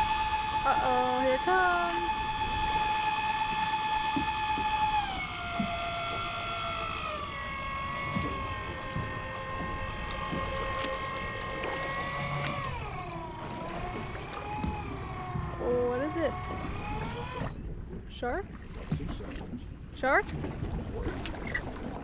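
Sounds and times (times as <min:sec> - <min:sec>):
electric fishing reel whine: 0:00.0 - 0:17.6.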